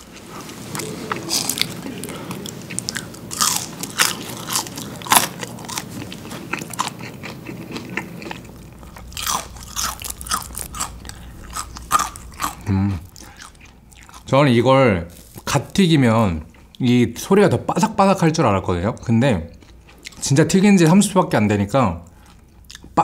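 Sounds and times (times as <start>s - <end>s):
crunchy food chewing: 0.0s - 14.3s.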